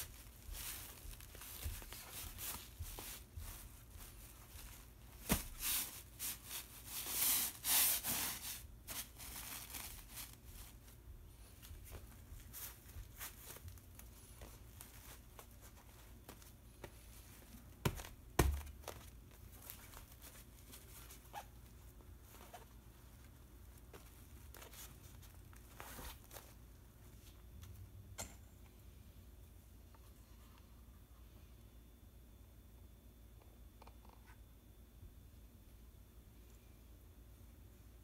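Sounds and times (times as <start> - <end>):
paper rustling under a hand: 0.0 - 27.5.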